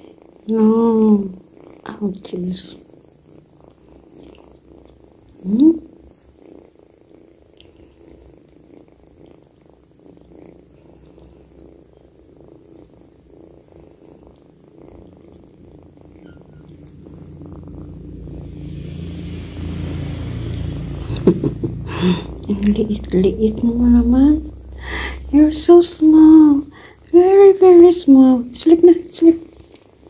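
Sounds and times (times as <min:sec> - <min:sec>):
kitten purring: 0:00.0 - 0:30.0
low rumble: 0:15.8 - 0:26.8.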